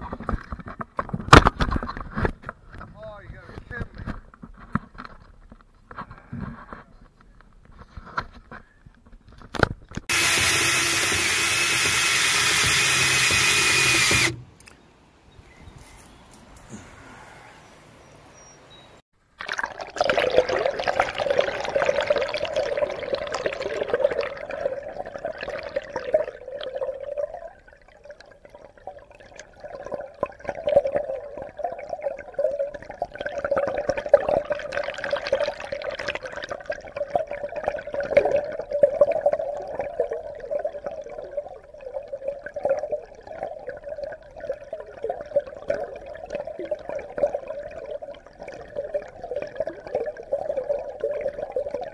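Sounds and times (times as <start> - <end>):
underwater rushing and gurgling: 19.7 - 28.0.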